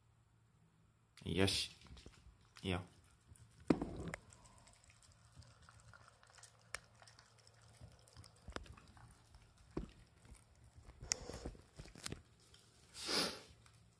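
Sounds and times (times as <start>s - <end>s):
dog chewing and licking: 2.0s - 13.9s.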